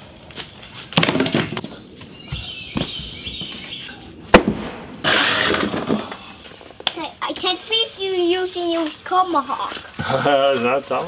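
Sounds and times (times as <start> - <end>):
scraping noise: 5.0 - 6.6.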